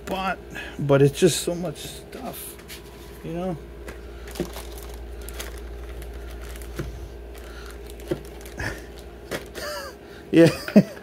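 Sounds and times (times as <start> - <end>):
low steady hum: 0.0 - 11.0
plastic packaging rustling: 2.7 - 9.8.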